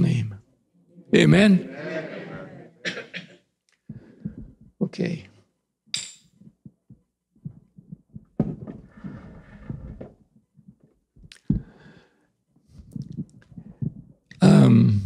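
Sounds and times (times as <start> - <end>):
soft low knocks and thumps: 3.9 - 4.8, 6.4 - 11.8, 12.8 - 14.2.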